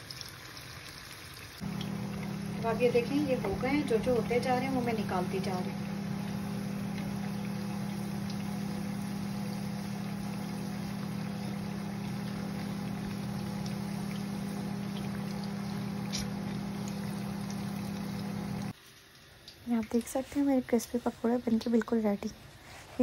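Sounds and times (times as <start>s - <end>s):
food deep-frying in oil: 0.0s - 22.3s
low hum: 1.6s - 18.7s.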